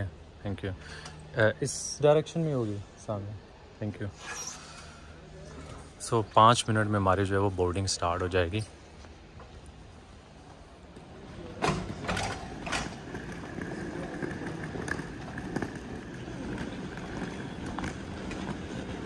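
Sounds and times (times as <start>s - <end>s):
trolley wheels rattling: 11.0s - 19.0s.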